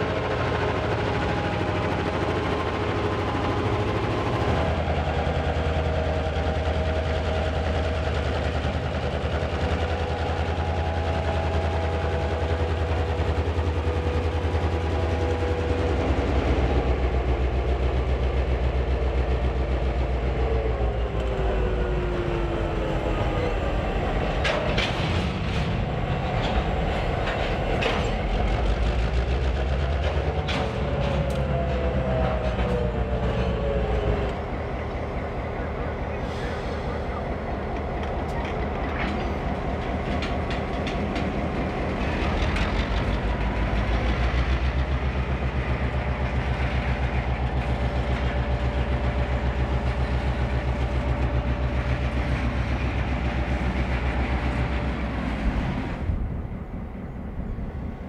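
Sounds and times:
locomotive engine drone: 0.0s - 58.0s
high squeal from wheels and rails: 20.6s - 58.0s.

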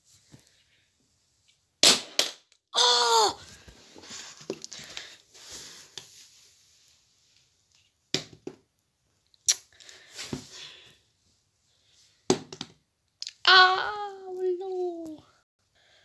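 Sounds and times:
rustling and handling noise: 3.4s - 8.1s.

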